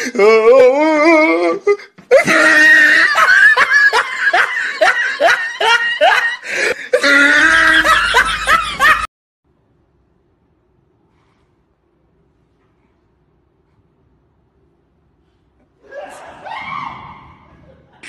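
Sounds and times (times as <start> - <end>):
person laughing heartily: 1.7 - 9.1.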